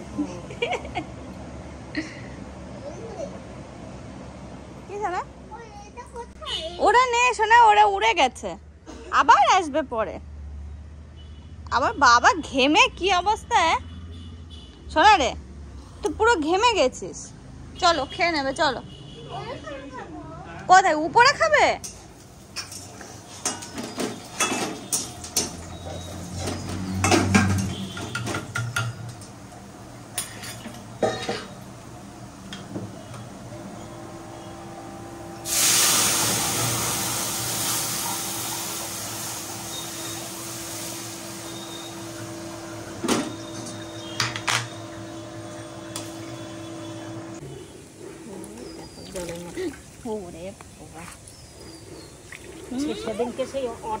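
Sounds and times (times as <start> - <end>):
dishes and cutlery clinking: 21.8 - 29.4, 30.1 - 31.6
steady hiss: 35.4 - 42.0.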